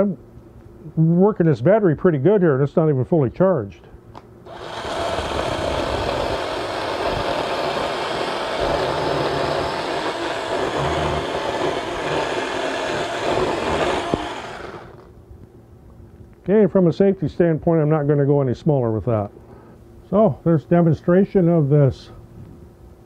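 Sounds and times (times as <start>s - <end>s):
electric chainsaw cutting wood: 4.5s - 15.1s.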